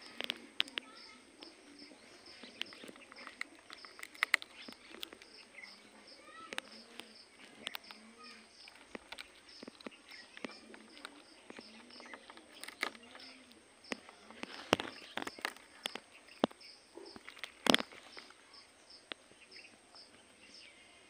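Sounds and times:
faint high chirping: 0.0 - 21.0
parrot beak clicking on wood: 2.5 - 5.8.

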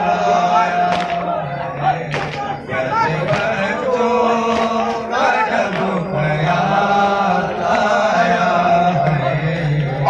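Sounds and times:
men chanting into microphones: 0.0 - 10.0.

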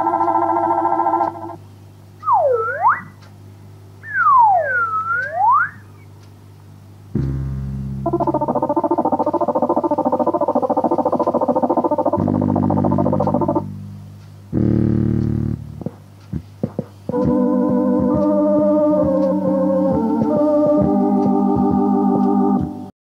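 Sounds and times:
pulsing warbling tone: 2.2 - 3.2, 4.0 - 5.9, 8.0 - 13.8
swooping synthesizer tone: 2.2 - 3.2, 4.0 - 5.9, 7.2 - 13.8, 17.1 - 22.9
held organ chord: 17.1 - 22.9.

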